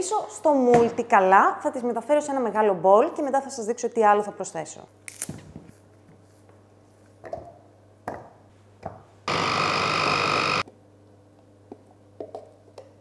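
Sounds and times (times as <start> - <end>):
electric chopper motor whirring: 9.3 - 10.6.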